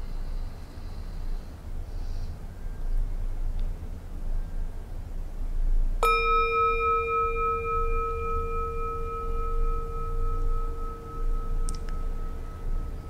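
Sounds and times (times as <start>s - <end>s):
singing bowl ringing: 6.0s - 13.0s
singing bowl struck with mallet: 6.0s - 13.0s.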